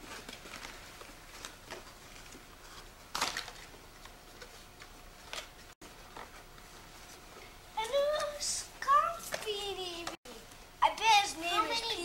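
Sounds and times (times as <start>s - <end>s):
wrapping paper rustling and crinkling: 0.0s - 3.7s.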